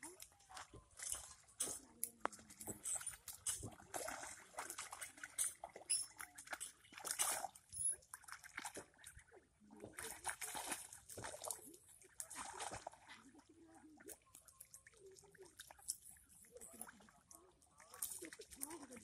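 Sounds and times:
ducklings splashing in water: 3.0s - 14.2s.

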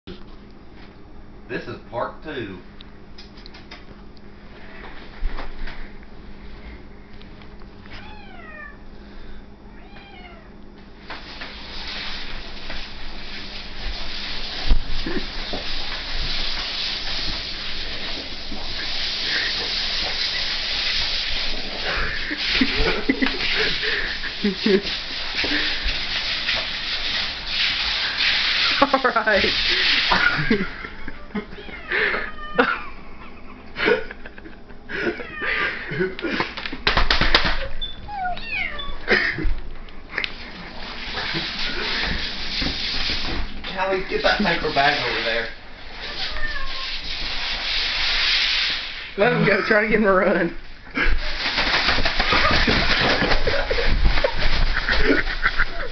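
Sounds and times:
cat meowing: 8.0s - 8.8s, 9.7s - 10.5s, 31.5s - 32.7s, 35.1s - 35.6s, 38.1s - 39.1s, 46.0s - 47.1s
cat scuffling on vinyl floor: 51.1s - 55.7s.

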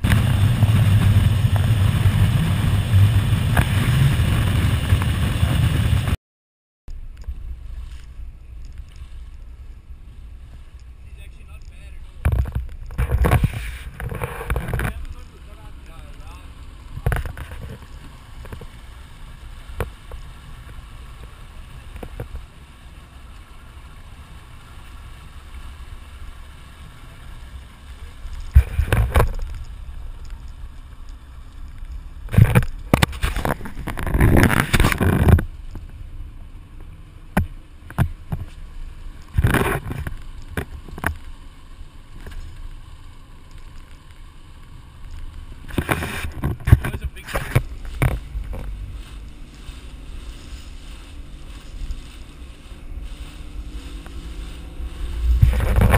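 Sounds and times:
boat engine drone: 0.0s - 6.2s, 7.0s - 55.9s
water rushing along hull: 0.0s - 6.2s, 7.2s - 55.9s.

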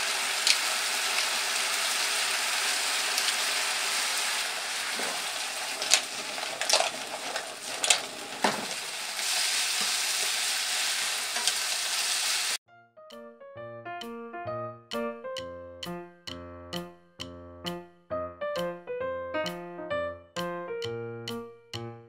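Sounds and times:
pasta sizzling in a frying pan: 0.0s - 12.6s.

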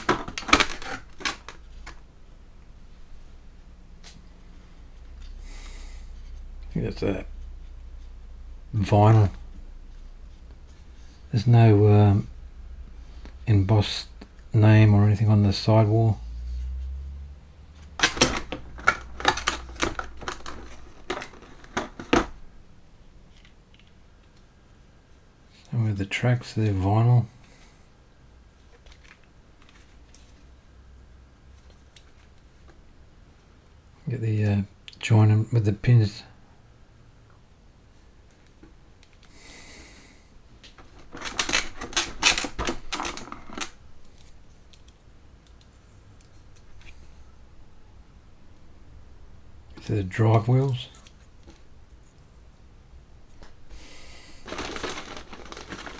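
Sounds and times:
plastic parts clicking in a tray: 0.0s - 2.0s, 18.0s - 22.3s, 40.8s - 46.9s, 54.5s - 55.9s.

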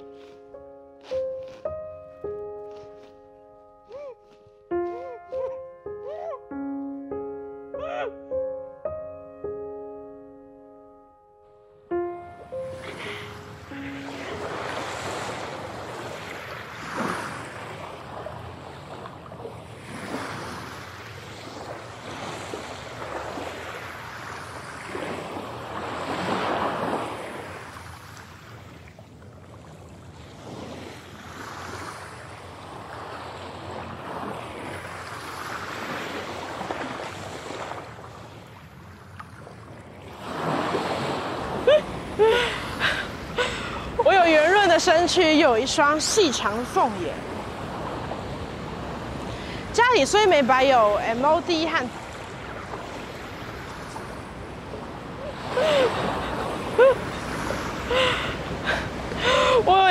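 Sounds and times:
woman laughing: 4.9s - 6.4s, 41.6s - 44.8s, 55.2s - 57.2s, 57.9s - 59.8s
ocean surf breaking: 12.5s - 28.8s, 30.1s - 59.9s.

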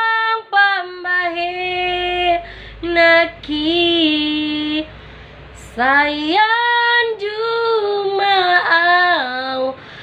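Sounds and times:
singer breathing: 2.4s - 2.8s, 4.9s - 5.6s, 9.8s - 10.0s.

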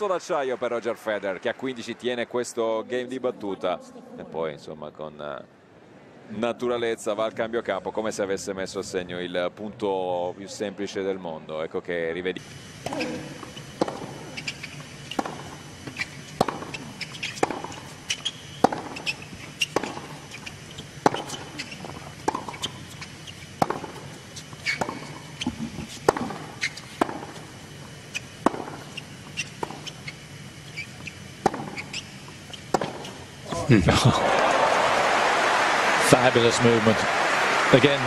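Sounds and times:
racket hitting tennis ball: 12.8s - 33.2s
ball bouncing on hard court: 12.8s - 33.3s.

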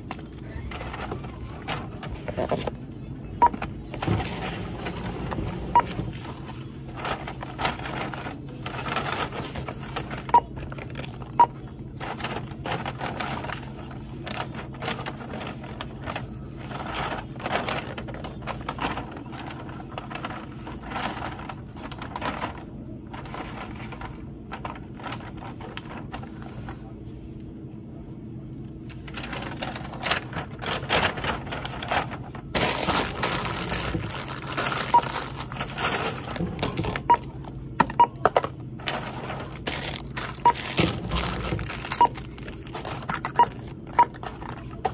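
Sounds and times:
paper bag rustling: 0.0s - 2.8s, 3.5s - 27.2s, 28.8s - 37.7s, 38.3s - 44.9s
barcode scanner beeps: 42.0s - 42.2s.

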